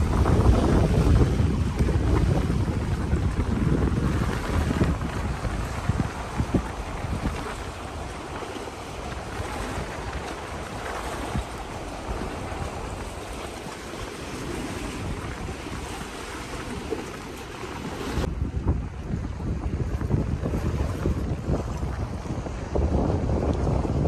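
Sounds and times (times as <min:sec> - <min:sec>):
water lapping against pier: 0:00.0 - 0:24.0
wind on microphone: 0:00.0 - 0:24.0.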